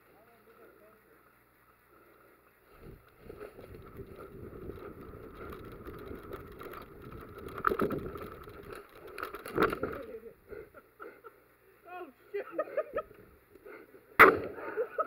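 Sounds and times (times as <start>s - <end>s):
gear rustling: 3.1s - 10.2s.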